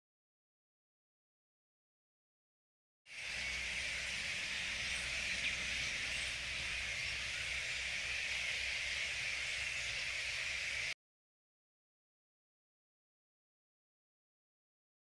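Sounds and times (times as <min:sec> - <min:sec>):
high-pitched wildlife din: 0:03.1 - 0:10.9.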